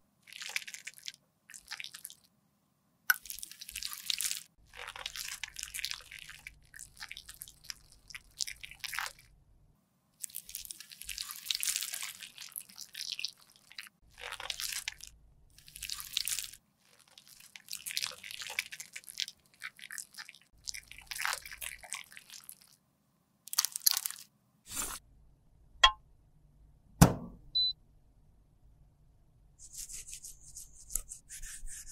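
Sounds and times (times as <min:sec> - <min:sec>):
sharp clicks or taps: 0:27.0 - 0:27.4.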